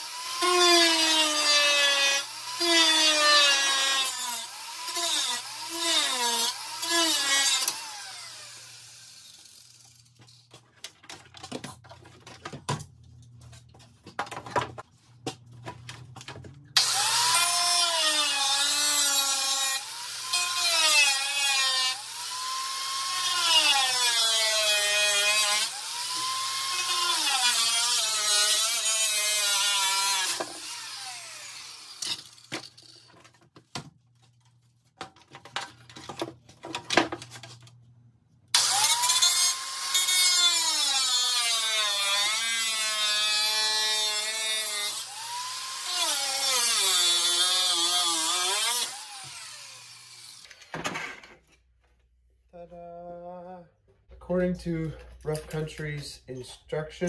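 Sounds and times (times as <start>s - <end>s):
angle grinder cutting plastic: 0.0s - 12.5s, 16.7s - 33.9s, 38.5s - 51.4s.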